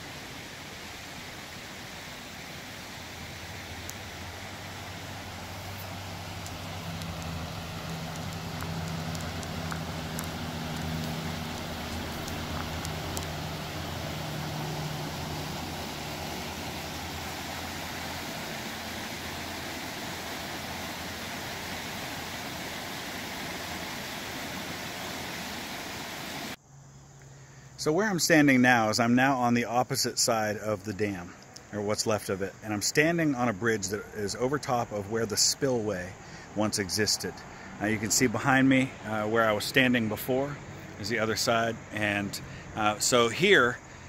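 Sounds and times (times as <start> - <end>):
river rushing over rapids: 0.0 - 26.6.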